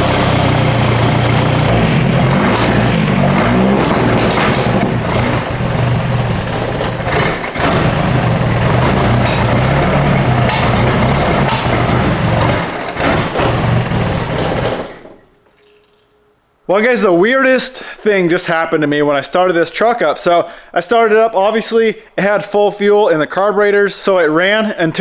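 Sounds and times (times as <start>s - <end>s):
pickup truck engine faltering: 0.0s - 15.3s.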